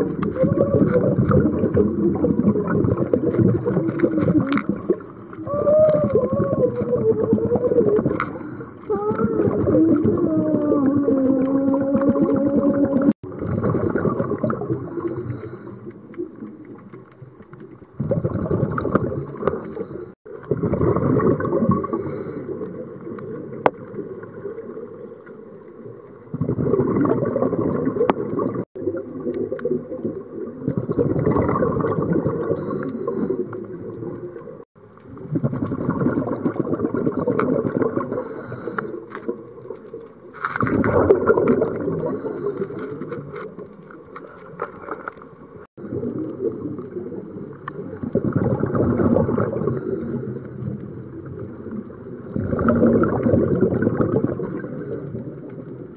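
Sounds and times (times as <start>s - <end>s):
regulator inhale hiss: 0.0s - 0.3s, 1.4s - 2.1s, 4.7s - 5.5s, 8.2s - 8.9s, 14.7s - 16.0s, 19.2s - 20.2s, 21.8s - 22.6s, 32.6s - 33.5s, 38.1s - 39.1s, 42.0s - 43.0s, 49.6s - 50.8s, 54.4s - 55.3s
exhaled bubbles gurgling: 0.0s - 55.9s.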